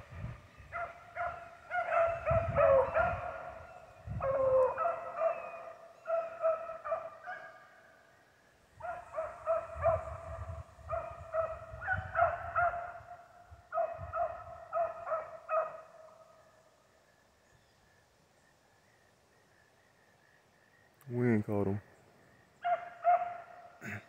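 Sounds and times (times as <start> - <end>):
dogs baying: 0.8 - 3.6, 4.2 - 7.6, 22.6 - 23.8.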